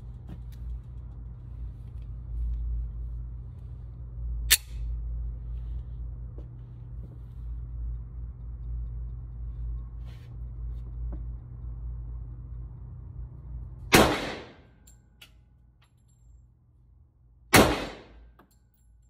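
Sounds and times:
steady low hum: 0.0s - 19.0s
pistol shot: 13.9s - 14.6s, 17.5s - 18.2s.

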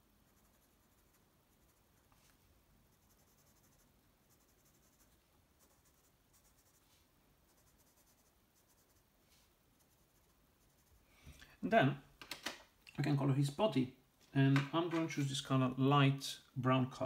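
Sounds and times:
pencil scratching on paper: 0.2s - 9.1s, 9.7s - 11.0s.

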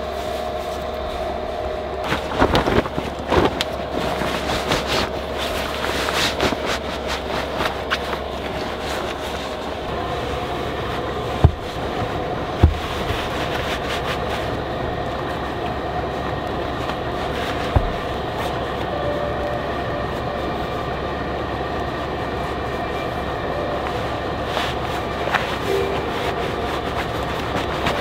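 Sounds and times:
vehicle rumbling: 0.0s - 28.0s
short thumps: 11.4s - 11.8s.

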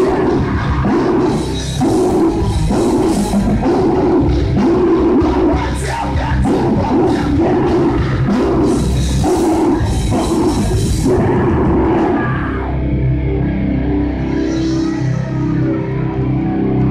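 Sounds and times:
drums and cymbals: 0.0s - 11.8s
screamed vocals: 0.0s - 13.0s
bass guitar: 0.0s - 16.9s
distorted electric guitars: 0.0s - 16.9s.

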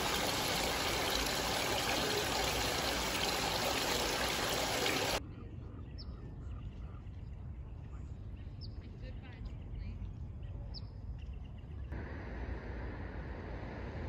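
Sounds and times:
running water rushing: 0.0s - 5.2s.

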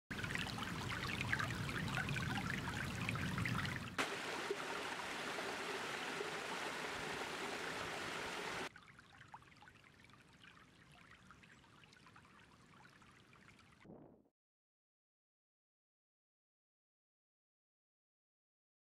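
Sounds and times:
creek running over stones: 0.1s - 13.6s
cascade splashing over rocks: 4.0s - 8.7s.

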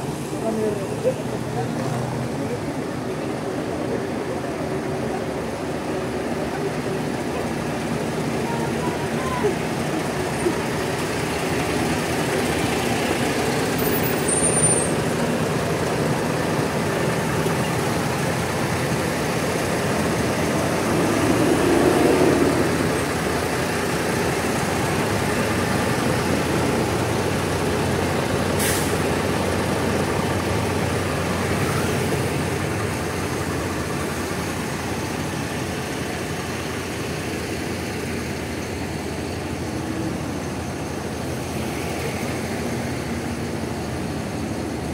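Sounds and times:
bus diesel engine running: 0.0s - 44.9s.

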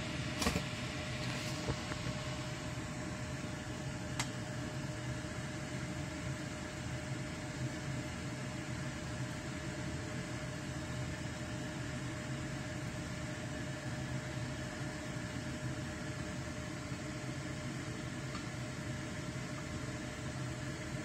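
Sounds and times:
appliance hum with hiss and whine: 0.0s - 21.0s.

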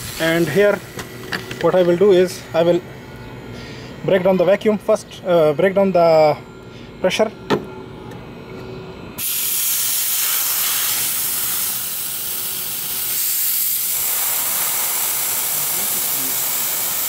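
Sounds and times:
compressed air hissing out: 9.2s - 17.0s.

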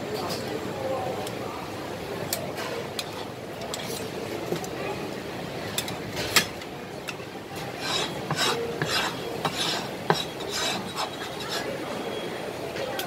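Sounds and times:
cleaver scraping across board: 7.7s - 11.8s.

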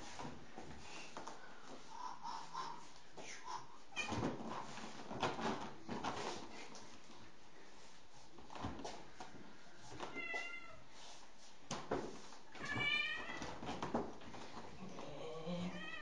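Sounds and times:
cat meowing: 12.6s - 13.5s, 15.6s - 16.0s.

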